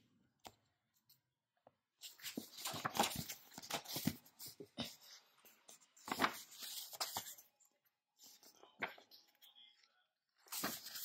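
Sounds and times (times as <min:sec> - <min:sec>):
paper book rustling: 0:02.0 - 0:07.5, 0:10.4 - 0:11.0.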